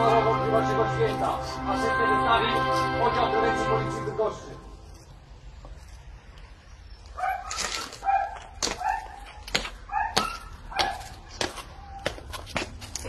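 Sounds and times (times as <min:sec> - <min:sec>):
dog barking: 0:07.2 - 0:11.2.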